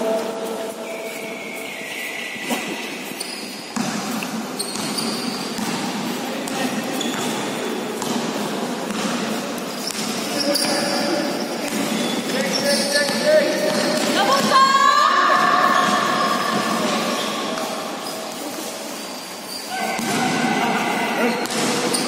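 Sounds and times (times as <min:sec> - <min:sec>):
shoe squeaks: 0:00.7 - 0:03.8, 0:04.4 - 0:05.6, 0:06.7 - 0:07.9, 0:09.7 - 0:13.8, 0:15.5 - 0:20.5, 0:21.2 - 0:22.0
basketball bouncing on court: 0:03.7 - 0:11.0, 0:13.0 - 0:14.6, 0:21.4 - 0:22.0.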